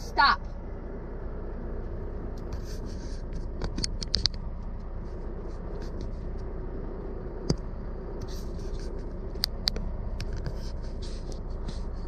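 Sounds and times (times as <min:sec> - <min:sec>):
truck idling hum: 0:00.0 - 0:12.0
light scrapes: 0:02.3 - 0:03.9, 0:08.2 - 0:09.4, 0:10.1 - 0:12.0.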